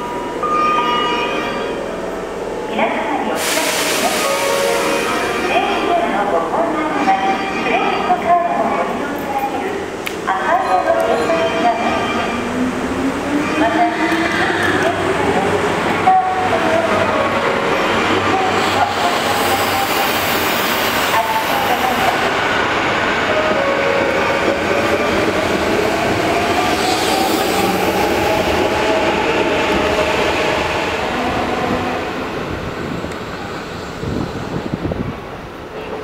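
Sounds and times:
train wheels rumbling on rail: 12.2s - 36.0s.

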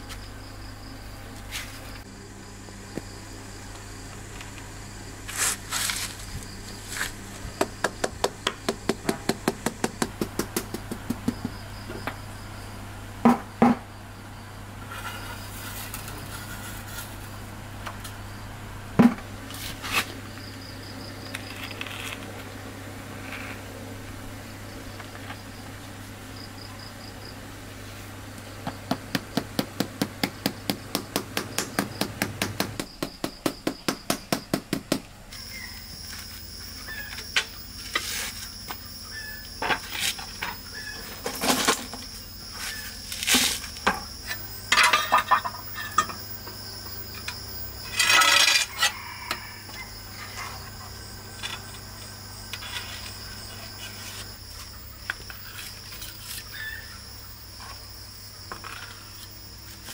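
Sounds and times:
knocks and scrapes of tiling work: 14.8s - 17.3s, 52.5s - 56.5s
insects shrilling: 35.3s - 59.9s.

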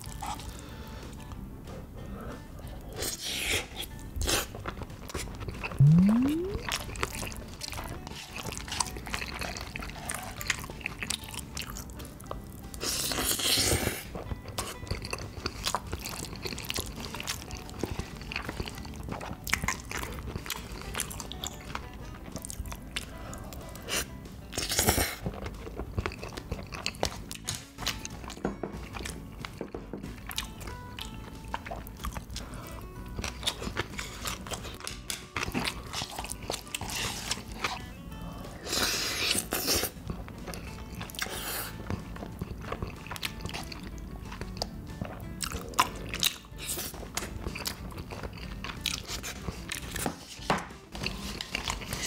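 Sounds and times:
person chewing noodles: 0.0s - 1.5s, 2.1s - 50.1s, 51.0s - 52.0s
background music: 0.0s - 52.0s
short rising tone: 5.8s - 6.7s.

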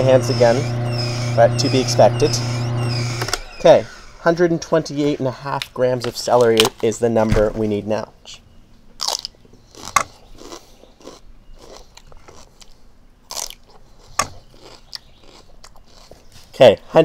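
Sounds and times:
person crunching celery: 9.0s - 16.5s.

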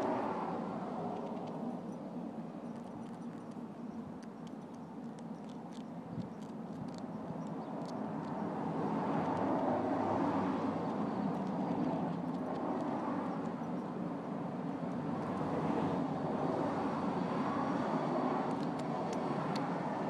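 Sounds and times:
road traffic rumble: 0.0s - 20.0s
faint high clicks: 1.1s - 2.0s, 2.6s - 8.5s
vehicle passing: 7.7s - 13.6s.

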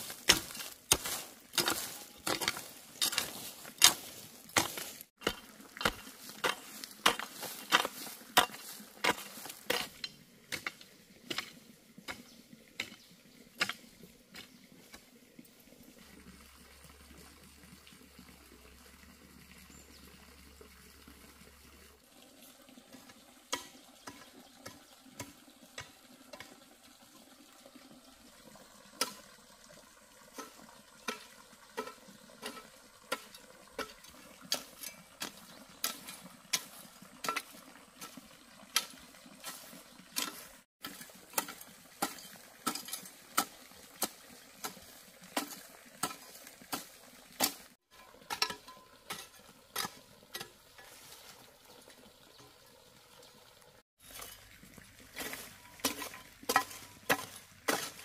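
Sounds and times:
hoe chopping into soil: 0.0s - 10.0s.

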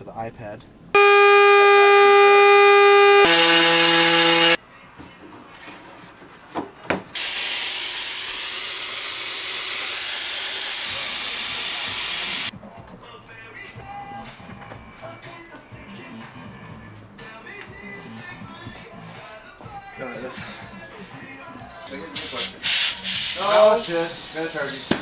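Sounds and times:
rotary tool whining: 1.0s - 4.6s
long steady hiss: 22.2s - 25.0s.

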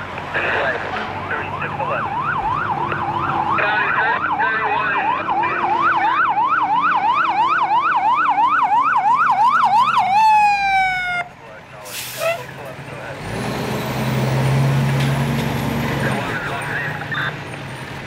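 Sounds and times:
fire engine siren yelping: 1.3s - 11.4s.

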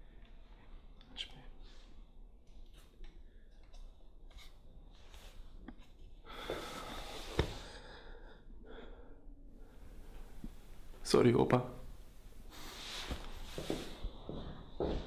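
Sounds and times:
quiet breathing: 0.0s - 2.4s, 3.0s - 11.0s, 11.9s - 15.0s
clothing rustling: 12.2s - 15.0s.

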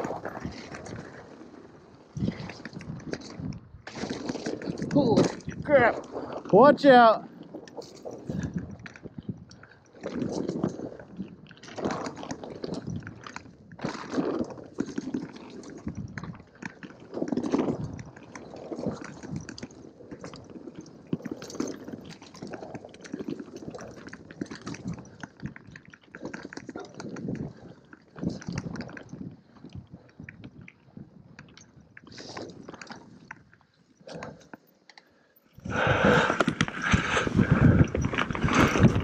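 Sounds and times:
bike tyres crunching over dirt: 0.0s - 6.6s, 35.6s - 39.0s
bike rattling: 0.0s - 34.9s, 35.5s - 39.0s.

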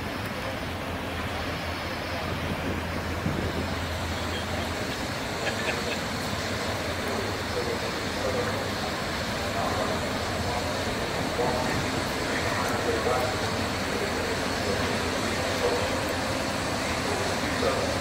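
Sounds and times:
city traffic hum: 0.0s - 18.0s
tugboat diesel drone: 0.0s - 18.0s.

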